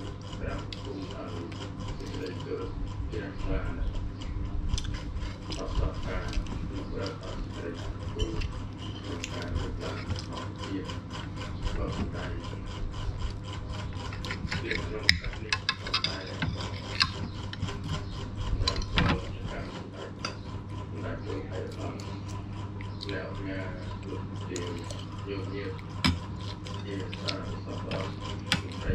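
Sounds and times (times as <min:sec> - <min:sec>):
steady low hum: 0:00.0 - 0:28.9.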